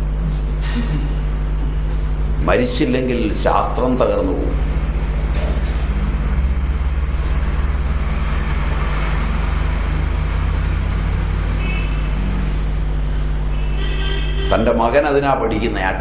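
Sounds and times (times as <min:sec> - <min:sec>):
steady low traffic hum: 0:00.0 - 0:16.0
vehicle rushing past: 0:04.4 - 0:13.8.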